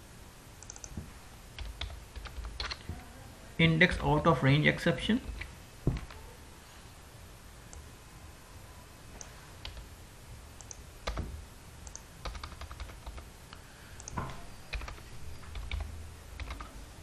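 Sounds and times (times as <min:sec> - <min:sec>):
faint low hum: 0:00.0 - 0:17.0
keyboard keystrokes: 0:00.6 - 0:01.0, 0:01.6 - 0:02.9, 0:10.6 - 0:13.2, 0:14.0 - 0:16.7
mouse clicks: 0:00.6 - 0:01.0, 0:10.6 - 0:10.8.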